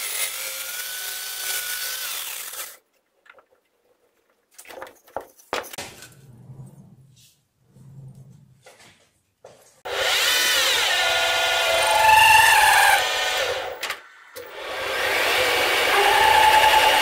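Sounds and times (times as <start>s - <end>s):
drill bit cutting steel: 0.0s - 2.8s, 9.9s - 13.8s, 14.4s - 17.0s.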